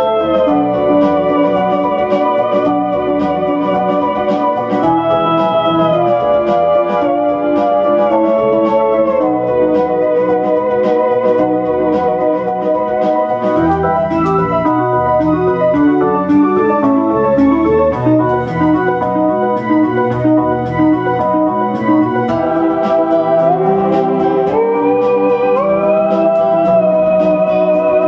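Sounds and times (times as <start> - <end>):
electronic organ-like chords: 0.0 - 28.0
light ticking beat: 0.0 - 28.0
theremin tone sliding upward: 13.4 - 28.0.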